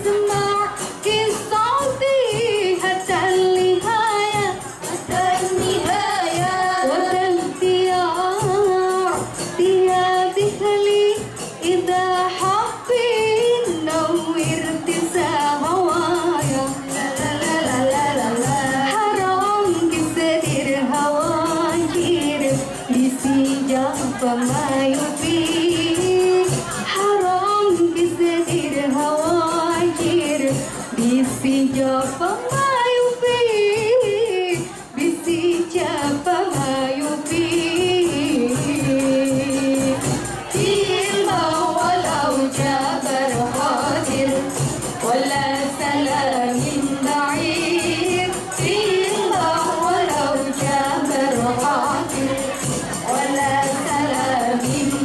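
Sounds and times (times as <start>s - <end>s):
frame drums beating: 0.0s - 55.0s
jingle tambourines: 0.0s - 55.0s
woman singing into a microphone: 0.0s - 55.0s.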